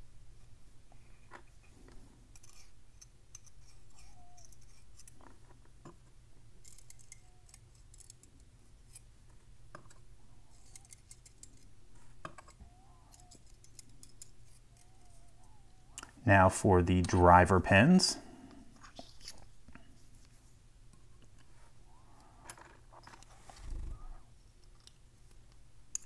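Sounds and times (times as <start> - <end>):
faint metallic tweezer clicks: 6.6 - 9.0, 12.4 - 16.1.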